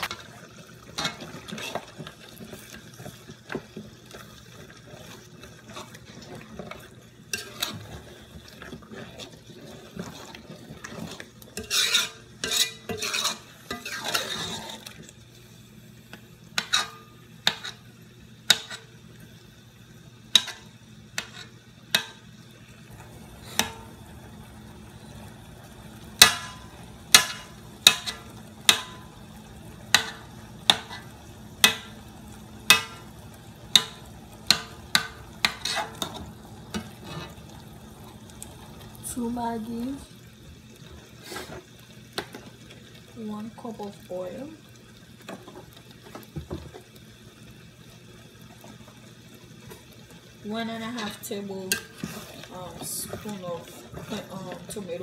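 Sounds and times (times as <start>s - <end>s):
low steady hum: 18.5s - 40.9s.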